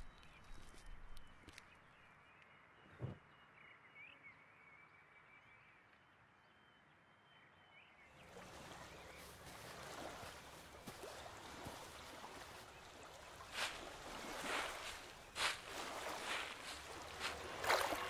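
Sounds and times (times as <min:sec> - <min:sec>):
faint bird chirps: 0:00.0 - 0:18.0
beach ambience hiss: 0:08.6 - 0:18.0.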